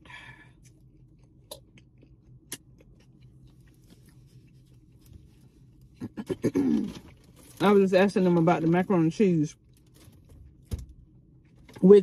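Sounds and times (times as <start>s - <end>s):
low hum inside car: 0.0s - 12.0s
chewing sandwich: 0.6s - 7.5s.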